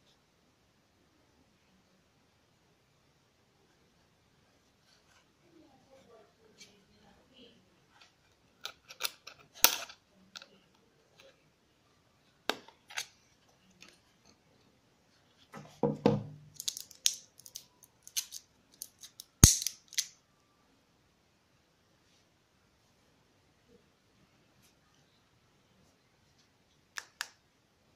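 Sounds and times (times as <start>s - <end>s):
batteries rattling: 16.6s - 20.1s.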